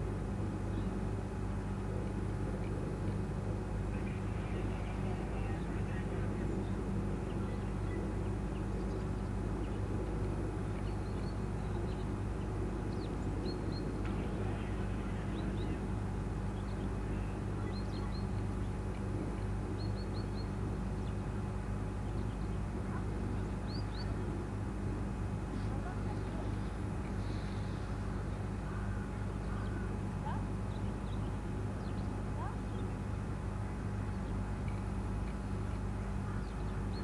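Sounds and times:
low machine hum: 0:00.0 - 0:37.0
small birds chirping: 0:03.9 - 0:37.0.

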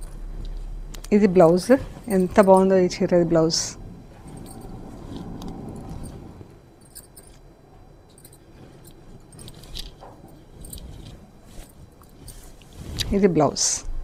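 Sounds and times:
cloth rustling: 0:00.0 - 0:02.9, 0:04.0 - 0:07.4, 0:08.1 - 0:13.6
light clicks and clinks: 0:04.2 - 0:12.7.

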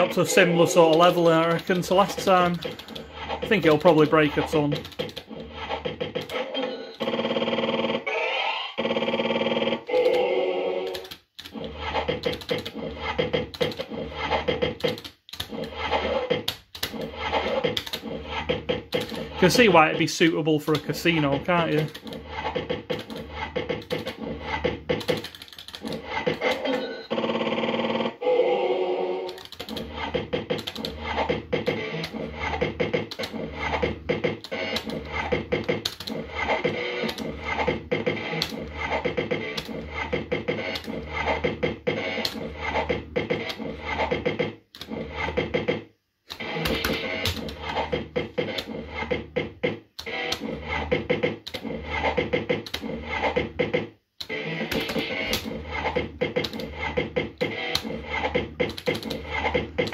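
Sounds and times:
rapid clicks and beeps: 0:00.0 - 0:08.1, 0:08.8 - 0:28.2, 0:29.3 - 0:59.9
fruit machine electronic music: 0:15.7 - 0:20.3, 0:29.7 - 0:45.8, 0:46.4 - 0:59.9.

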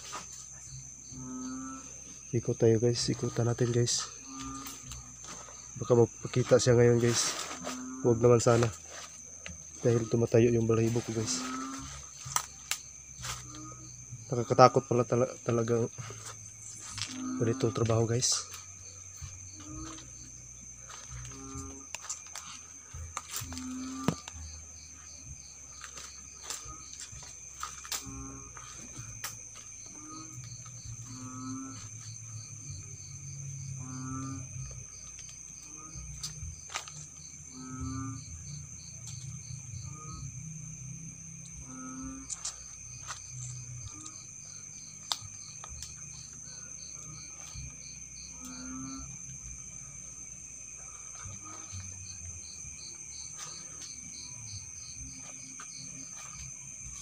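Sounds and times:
crickets chirping: 0:00.0 - 0:57.0
high-pitched insect drone: 0:00.0 - 0:57.0.

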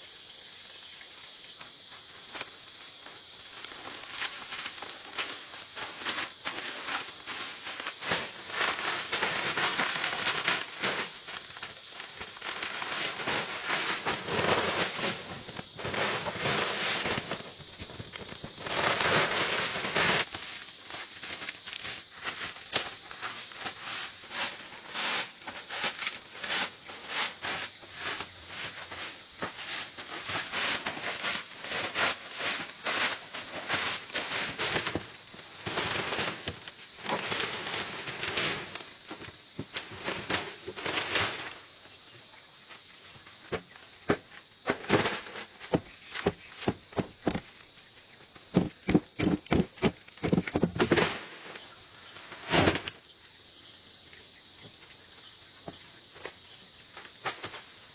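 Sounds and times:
dry leaf thatch crackling: 0:01.6 - 0:41.6.

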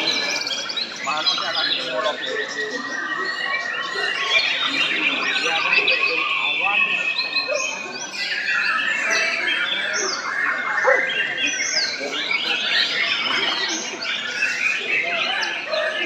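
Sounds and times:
songbirds singing in chorus: 0:00.0 - 0:16.0.

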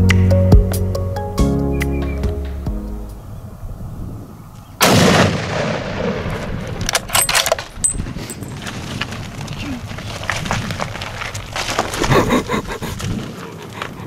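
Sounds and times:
rifle shot with echo: 0:04.8 - 0:06.8.

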